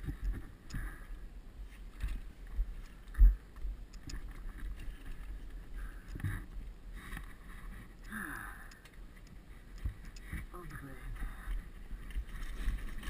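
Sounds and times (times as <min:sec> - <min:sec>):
wind rumble on microphone: 0:00.0 - 0:08.1.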